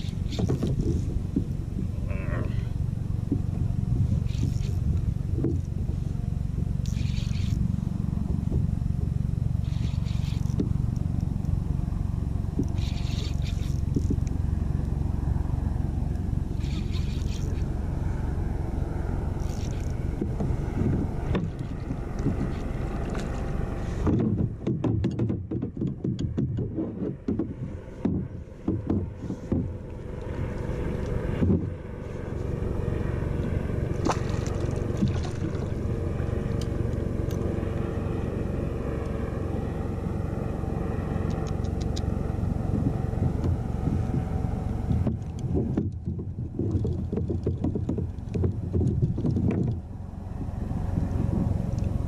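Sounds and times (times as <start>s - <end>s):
water lapping against kayak: 0.0s - 40.2s, 40.8s - 52.0s
faint steady hum: 0.0s - 52.0s
wind rumbling on microphone: 0.0s - 52.0s
knocks and splashes: 20.1s - 29.9s, 33.6s - 36.6s, 45.0s - 49.9s.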